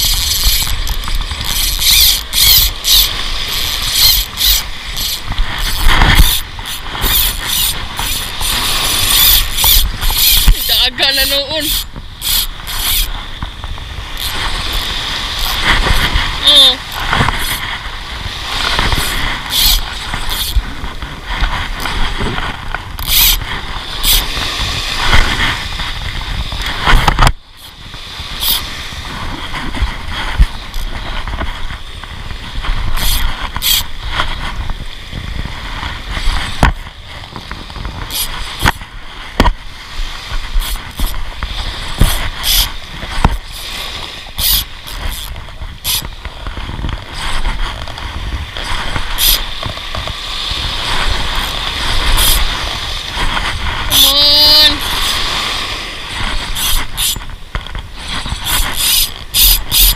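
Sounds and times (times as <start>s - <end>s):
spinning reel winding: 0.0s - 13.2s, 14.1s - 17.7s, 18.6s - 20.6s, 23.0s - 24.4s, 28.4s - 28.7s, 32.9s - 33.9s, 38.1s - 38.8s, 40.6s - 41.2s, 41.9s - 42.8s, 43.4s - 46.1s, 49.1s - 49.5s, 50.9s - 52.6s, 53.9s - 55.2s, 56.2s - 57.3s, 58.0s - 59.9s
small waves washing ashore: 0.0s - 59.9s
wind buffeting microphone: 0.0s - 59.9s.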